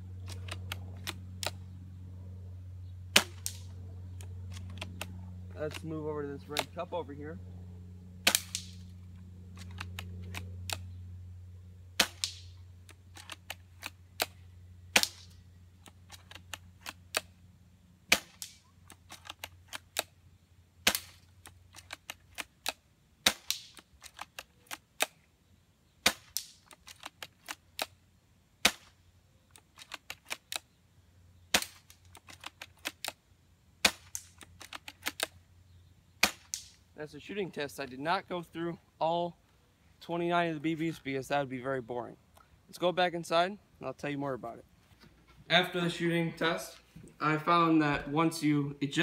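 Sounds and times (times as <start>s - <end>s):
airsoft rifle shots: 3.1s - 6.8s, 8.2s - 8.9s, 12.0s - 15.4s, 18.1s - 20.1s, 20.8s - 21.3s, 21.9s - 25.2s, 28.6s - 29.0s, 31.5s - 31.9s, 33.8s - 35.3s, 36.2s - 36.8s.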